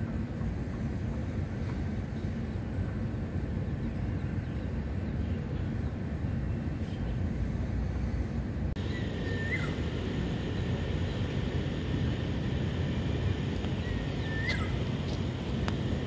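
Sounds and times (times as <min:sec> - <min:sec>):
distant traffic rumble: 0:00.0 - 0:16.0
bird call: 0:08.8 - 0:09.9, 0:13.8 - 0:14.8.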